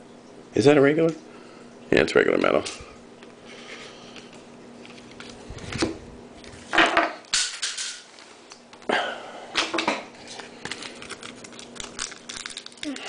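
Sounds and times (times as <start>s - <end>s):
foil wrapper crinkling and tearing: 10.2s - 13.0s.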